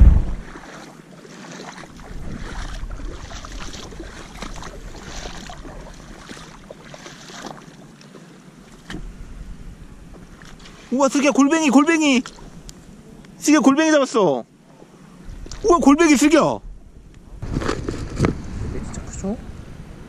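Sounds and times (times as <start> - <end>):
water sloshing from wading steps: 0.0 - 9.2, 10.1 - 13.0, 14.6 - 16.5.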